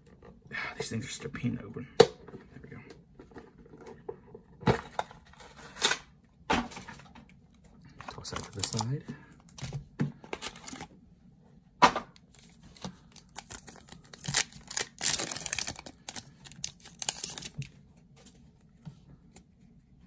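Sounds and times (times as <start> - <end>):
foil wrappers crinkling: 12.4 - 17.7.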